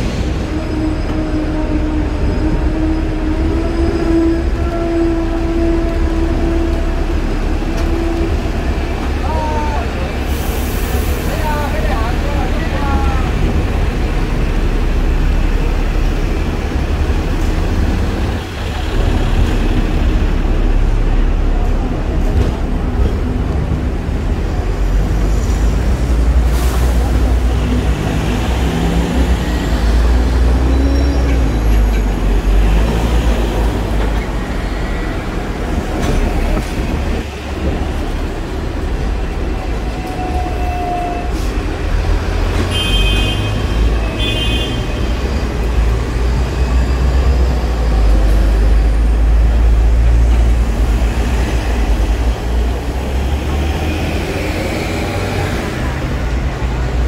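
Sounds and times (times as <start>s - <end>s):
street traffic: 0.0s - 57.0s
tram rumbling on rails: 0.0s - 57.0s.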